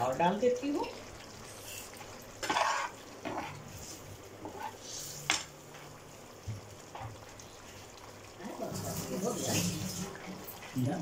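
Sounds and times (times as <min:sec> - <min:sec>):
spoon scraping pan: 0:00.8 - 0:05.5.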